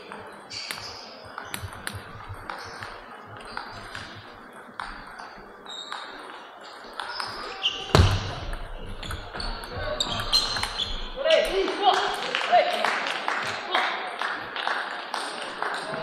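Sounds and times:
table tennis ball clicking: 8.3s - 11.6s.

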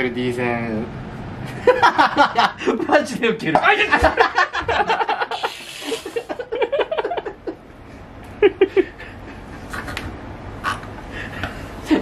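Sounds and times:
men laughing and crying out: 3.7s - 7.6s.

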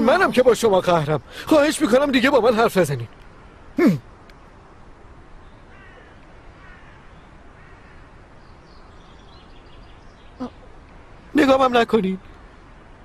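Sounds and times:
faint bird calls: 5.4s - 10.8s.

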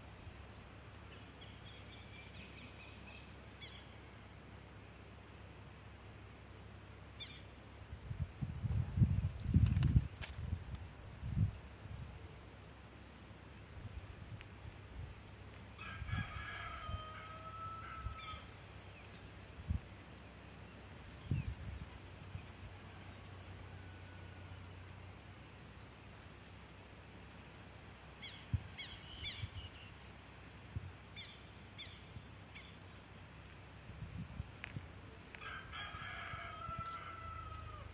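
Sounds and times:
rooster crowing: 15.8s - 18.5s, 35.4s - 37.9s.

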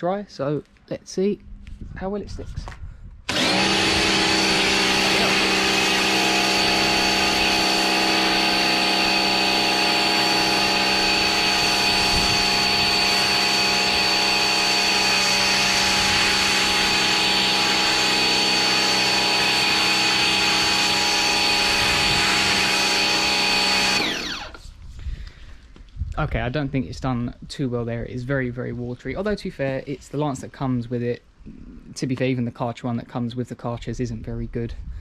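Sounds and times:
pressure washer motor whine: 3.3s - 24.7s.

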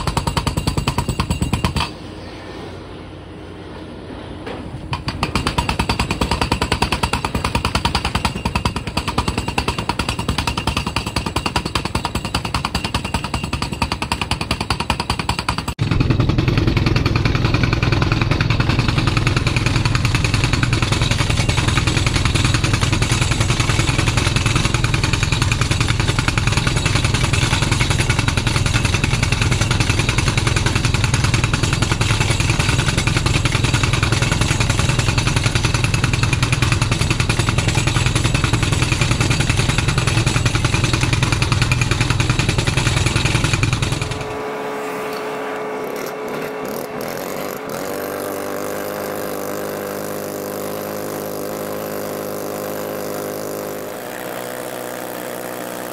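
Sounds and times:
rock drill hammering: 0.0s - 2.0s, 4.9s - 44.4s, 45.8s - 55.9s
steady engine hum: 1.4s - 11.4s, 15.0s - 55.9s.

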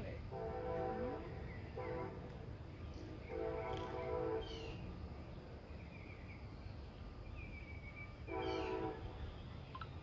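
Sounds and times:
horn blasts sounding a chord: 0.3s - 2.3s, 3.3s - 4.6s, 8.3s - 9.1s
birds chirping: 1.1s - 10.0s.

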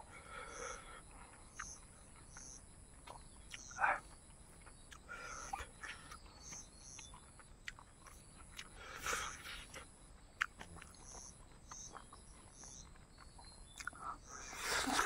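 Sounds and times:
high insect drone: 0.0s - 7.0s
person chewing food: 1.0s - 15.0s.

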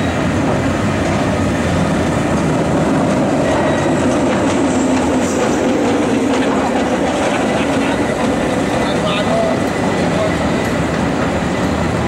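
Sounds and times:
cable car wheels rumbling on rail: 0.0s - 12.0s.

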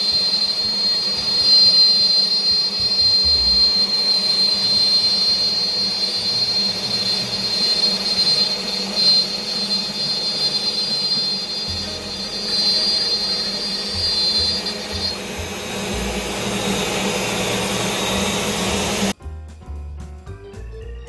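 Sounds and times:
cnc router cutting with whine: 0.0s - 19.2s
background music: 11.7s - 21.0s.

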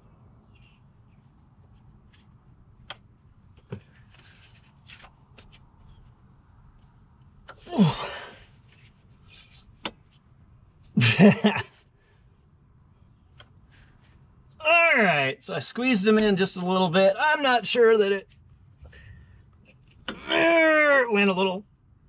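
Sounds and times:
man grunting with effort: 7.6s - 8.4s.

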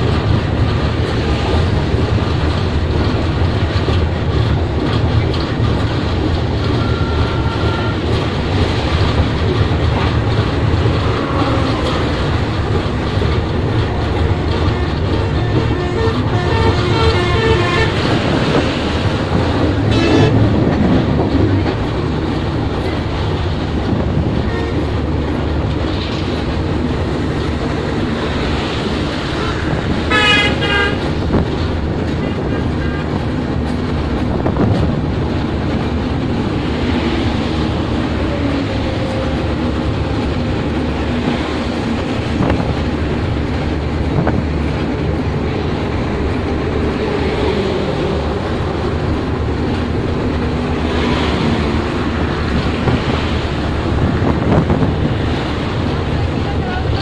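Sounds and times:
road traffic passing: 0.0s - 57.0s
train running noise: 0.0s - 57.0s
horns tooting: 6.7s - 8.2s, 14.2s - 18.1s, 29.4s - 31.1s.

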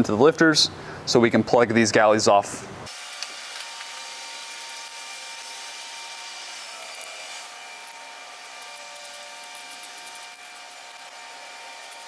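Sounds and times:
faint hum tones: 2.4s - 12.0s
shop background hiss: 2.5s - 12.0s
hex wrench ticking: 4.3s - 7.2s, 8.2s - 12.0s.

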